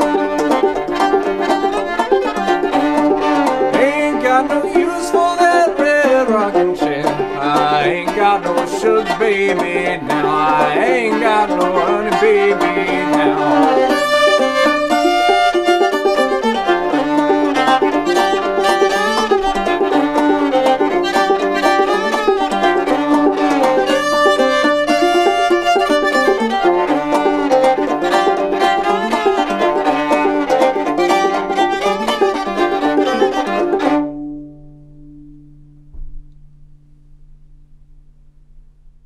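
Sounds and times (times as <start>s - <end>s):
bowed fiddle melody: 0.0s - 36.1s
picked banjo: 0.0s - 36.2s.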